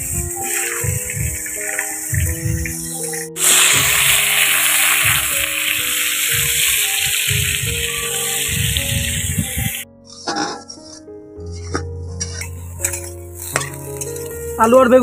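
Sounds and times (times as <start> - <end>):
vegetables sizzling in hot oil: 0.0 - 9.8
background music with low beat: 0.0 - 15.0.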